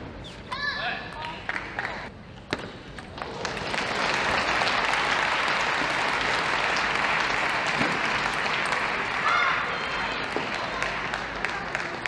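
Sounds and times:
crowd applauding: 3.1 - 12.0.

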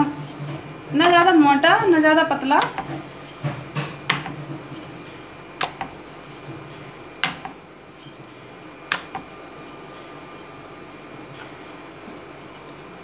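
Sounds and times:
rolling pin knocking on wooden board: 2.6 - 4.6.

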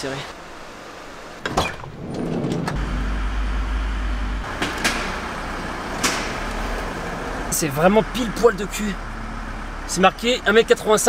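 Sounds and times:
van engine running: 0.5 - 11.0
sharp clicks and knocks: 4.5 - 5.2.

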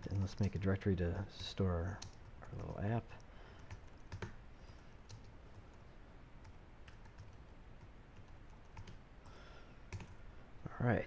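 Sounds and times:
computer keyboard keystrokes: 0.1 - 0.7, 1.4 - 5.7, 6.4 - 7.4, 8.2 - 9.0, 9.9 - 10.2.

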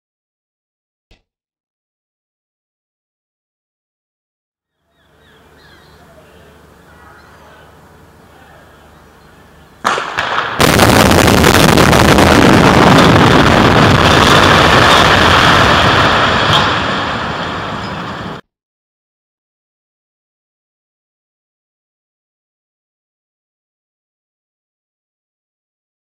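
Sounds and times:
explosive charges banging: 9.8 - 17.8
building collapsing rumble: 9.9 - 18.4.

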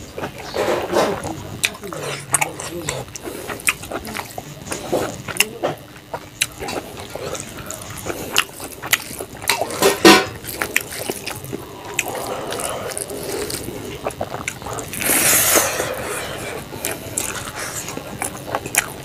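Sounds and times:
loud hissing slurp: 11.6 - 14.0, 14.6 - 17.9.

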